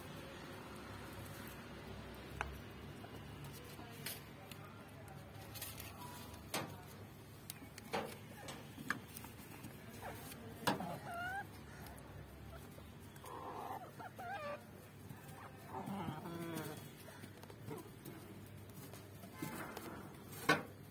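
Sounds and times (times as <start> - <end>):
chickens clucking: 7.8 - 20.6.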